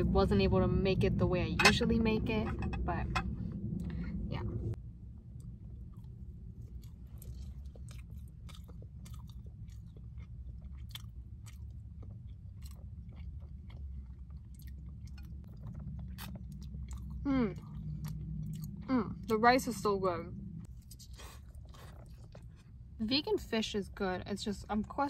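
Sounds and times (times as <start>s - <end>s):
steady low hum: 0.0s - 25.0s
person chewing food: 5.3s - 18.9s, 20.6s - 23.0s.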